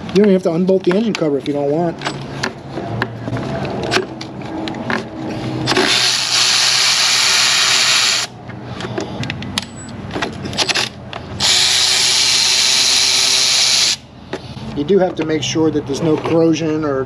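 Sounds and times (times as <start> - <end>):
tool handling clicks: 0.0 - 5.1, 8.4 - 11.3
cordless electric ratchet running: 5.7 - 8.3, 11.4 - 14.0.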